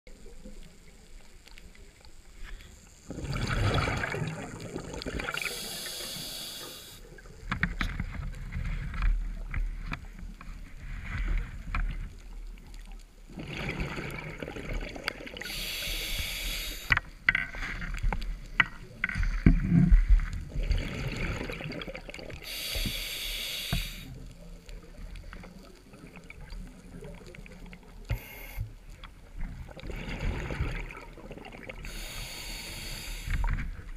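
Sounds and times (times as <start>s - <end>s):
bubbling exhalations: 3.1s - 5.9s, 13.3s - 15.6s, 29.7s - 32.2s
regulator hissing inhalations: 5.3s - 7.1s, 15.4s - 17.0s, 22.4s - 24.2s, 28.1s - 28.7s, 31.8s - 33.6s.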